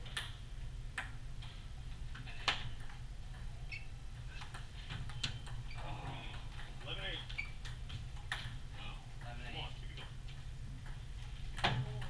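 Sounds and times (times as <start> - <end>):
steady low hum: 0.0 - 12.0
table tennis ball tapping: 7.6 - 8.6.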